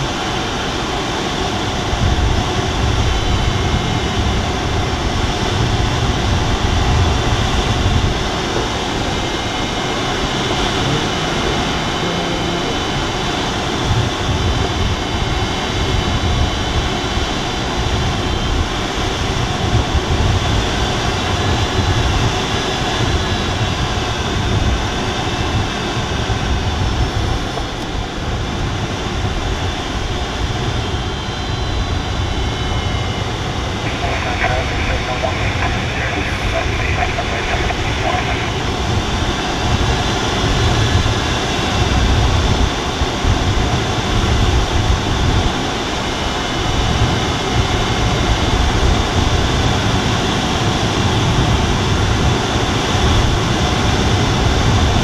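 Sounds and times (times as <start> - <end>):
low unsteady rumble: 33.6 - 39.9.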